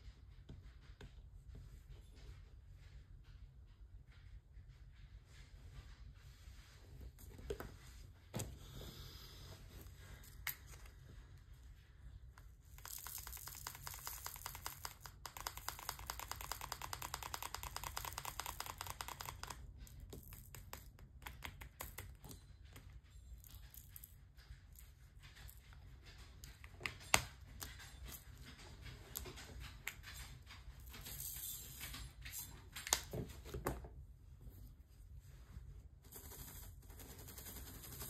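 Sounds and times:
tiny plastic beads pouring: 12.7 - 16.6.

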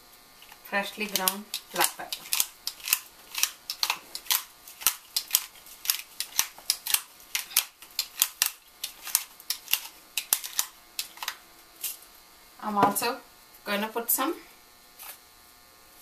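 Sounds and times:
pepper grinder clicking: 1.0 - 11.4.

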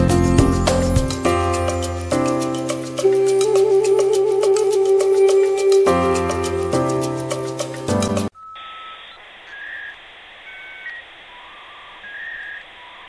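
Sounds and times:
background music: 0.0 - 8.3
hissy telephone-like noise: 8.3 - 13.0
short electronic beeps: 8.3 - 13.0.

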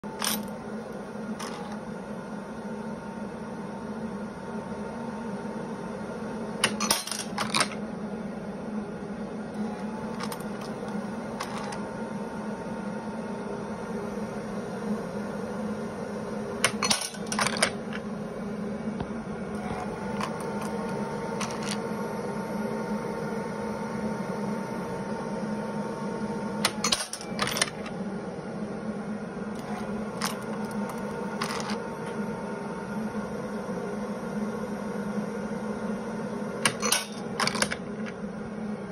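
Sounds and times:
machine humming: 0.0 - 38.9
thin steady electronic whine: 0.0 - 38.9
clicks and clatter of machine: 0.1 - 0.6, 1.4 - 1.8, 6.6 - 7.8, 9.6 - 11.8, 16.6 - 18.0, 19.6 - 21.8, 26.6 - 28.0, 29.6 - 31.8, 36.6 - 38.2.

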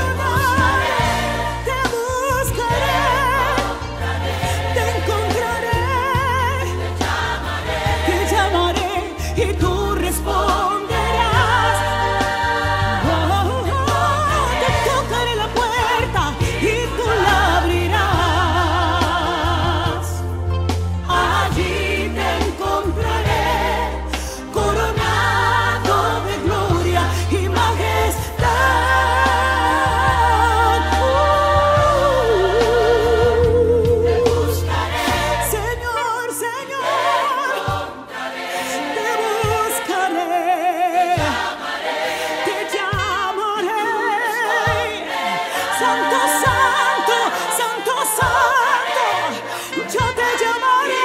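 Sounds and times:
woman singing: 0.0 - 3.7, 8.1 - 12.2, 13.0 - 20.2, 25.7 - 34.7, 35.5 - 37.8, 38.8 - 41.5, 42.7 - 51.0
band accompaniment with strong bass: 0.0 - 36.5
woman singing with vibrato: 26.4 - 34.6, 45.6 - 51.0.

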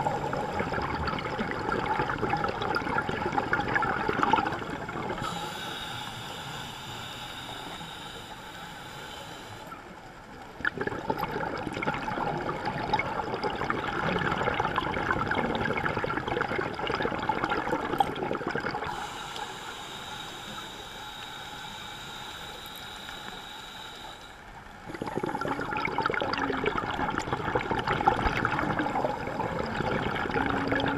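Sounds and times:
exhaled bubbles gurgling: 0.0 - 6.0, 10.4 - 23.4, 24.7 - 30.9
regulator inhale hiss: 4.7 - 10.0, 18.8 - 25.6.

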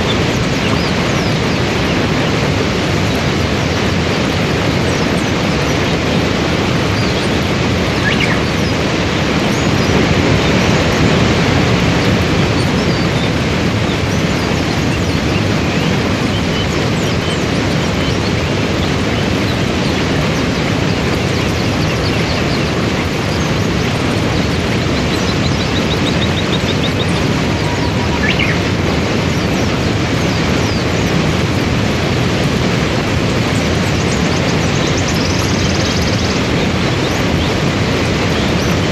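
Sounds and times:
rapids rushing over rocks: 0.0 - 38.9
faint bird chirps: 6.9 - 8.8, 24.8 - 28.7.

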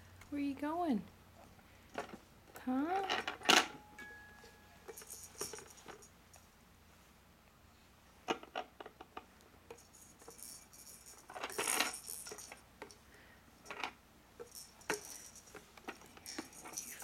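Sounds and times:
plastic toys clicking and clattering: 2.8 - 3.8, 4.8 - 6.1, 8.3 - 13.0, 13.6 - 17.0.

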